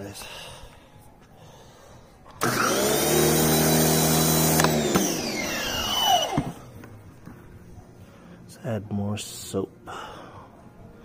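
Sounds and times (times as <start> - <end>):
pressure washer motor hum: 2.4 - 6.6.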